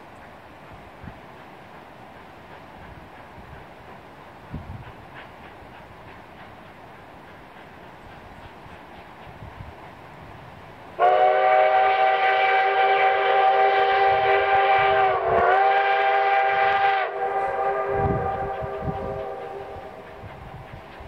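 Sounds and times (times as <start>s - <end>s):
steam locomotive whistle: 11.0s - 20.2s.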